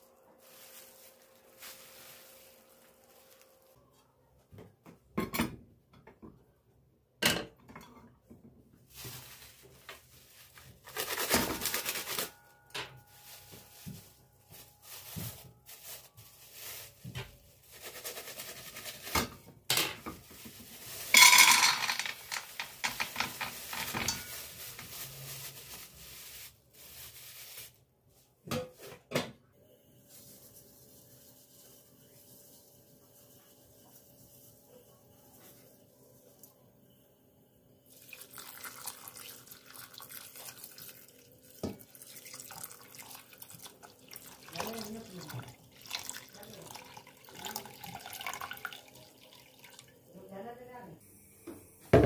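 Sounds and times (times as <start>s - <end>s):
plastic bag rustling: 0.1s - 3.9s, 8.8s - 19.4s, 20.0s - 27.9s
frozen cherries rattling into pot: 8.9s - 12.4s, 20.3s - 26.1s.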